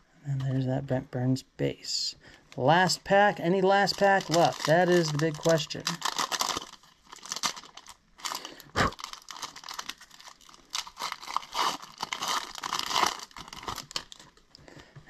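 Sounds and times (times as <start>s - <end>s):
foil wrapper crinkling and tearing: 3.6s - 14.5s.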